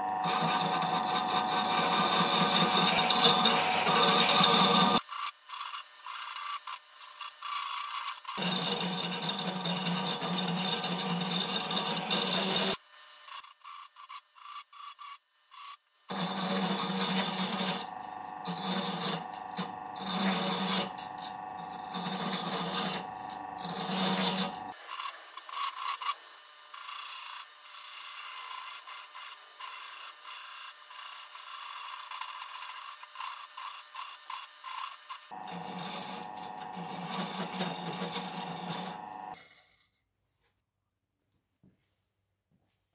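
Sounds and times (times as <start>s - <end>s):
drill press running: 0.0s - 5.0s, 7.4s - 12.8s, 16.1s - 25.8s, 35.4s - 39.4s
chisel scraping spinning plywood: 0.2s - 12.8s, 13.8s - 26.2s, 30.9s - 39.8s.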